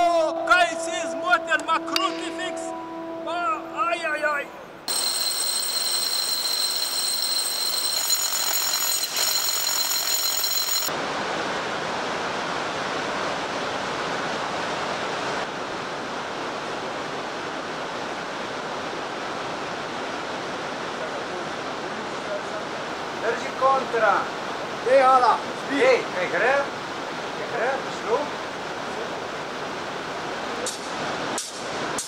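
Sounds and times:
shrill high ringing tone: 0.0 - 10.9
underground river roaring: 10.9 - 31.4.

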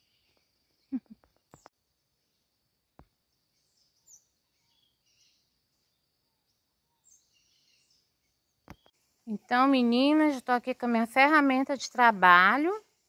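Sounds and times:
faint distant bird chirps: 0.0 - 10.8.

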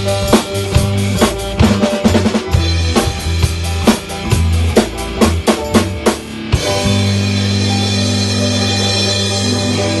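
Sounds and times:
drum fill: 0.0 - 10.0
rock band playing: 0.0 - 10.0
held chord ringing: 6.4 - 10.0.

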